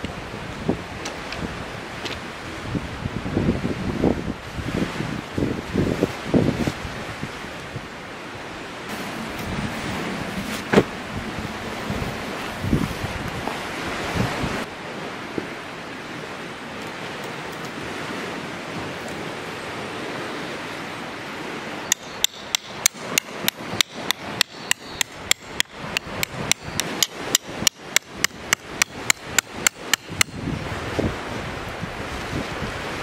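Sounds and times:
wind noise: 0.0s - 33.0s
ringing hammer strikes: 21.8s - 30.4s.

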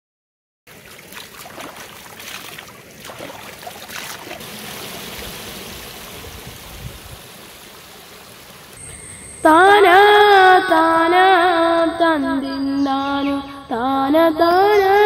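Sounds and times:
hands splashing in water: 0.7s - 4.4s
stream running over rocks: 0.7s - 8.8s.

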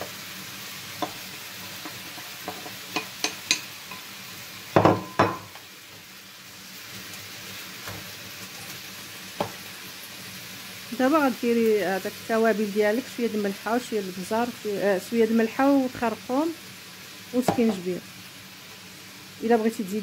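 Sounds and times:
food sizzling in a frying pan: 0.0s - 20.0s
wooden spatula knocking on pan: 4.8s - 5.6s, 17.4s - 17.8s.

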